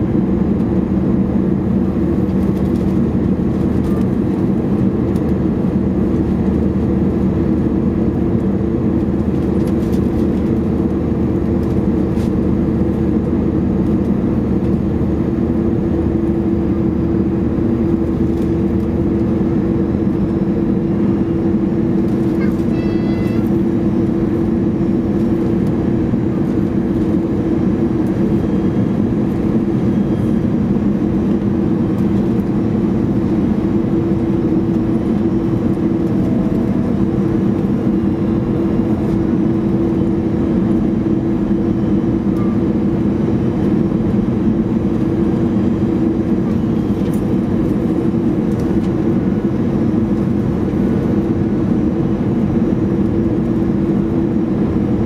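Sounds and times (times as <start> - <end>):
jet engine cabin drone: 0.0 - 55.0
brief high tone: 22.4 - 23.5.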